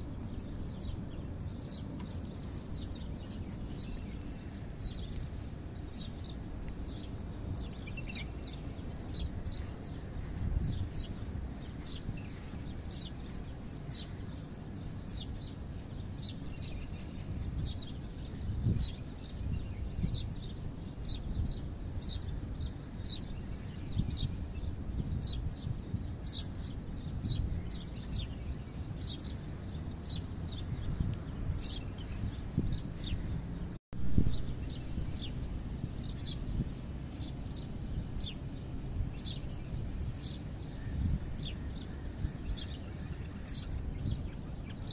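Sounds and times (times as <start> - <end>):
bird chirping: 0.0 - 44.9
steady low rumble: 0.0 - 44.9.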